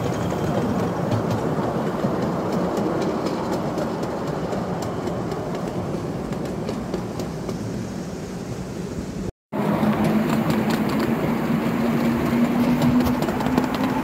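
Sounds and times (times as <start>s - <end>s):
train wheels rumbling on rails: 0.0s - 14.0s
clicks over rail joints: 0.1s - 7.6s.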